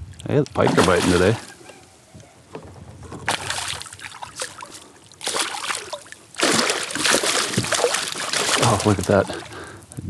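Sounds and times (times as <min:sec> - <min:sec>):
fish splashing at water surface: 0:03.3 - 0:09.6.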